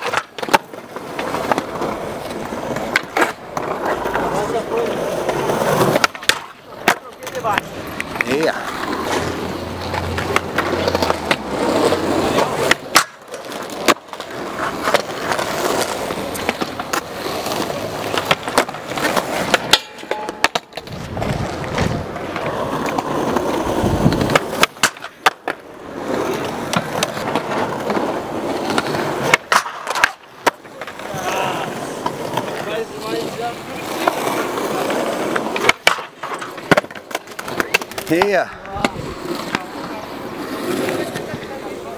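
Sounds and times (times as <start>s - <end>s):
skateboard tail pops: 0.0s - 4.0s, 5.2s - 8.3s, 12.3s - 17.1s, 18.1s - 25.7s, 26.4s - 31.4s, 35.0s - 39.7s
skateboard landings: 0.0s - 41.9s
skateboard wheels rolling on concrete: 0.0s - 41.9s.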